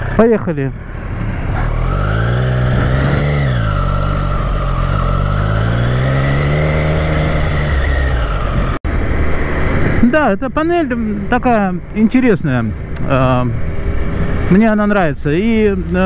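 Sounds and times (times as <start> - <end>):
motorcycle engine pulling away: 0.8 - 8.8.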